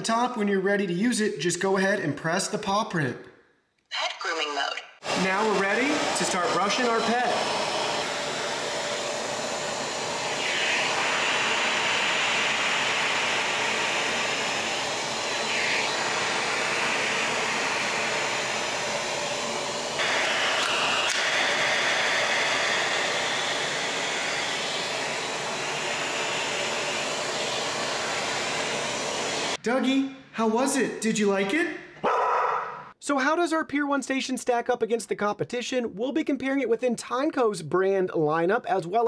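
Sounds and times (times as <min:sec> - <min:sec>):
vacuum motor whirring: 0:05.0 - 0:29.6.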